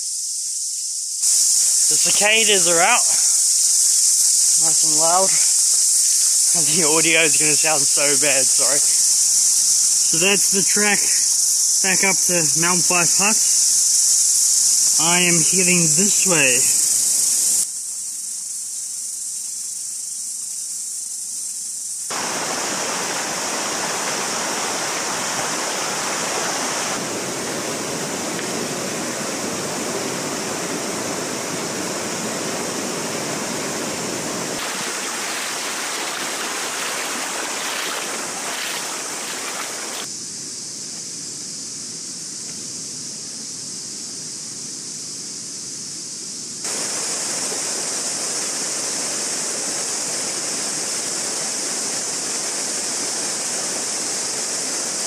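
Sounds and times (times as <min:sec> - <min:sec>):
cicadas chorus: 0:00.0 - 0:55.0
broad rushing noise: 0:22.1 - 0:40.1.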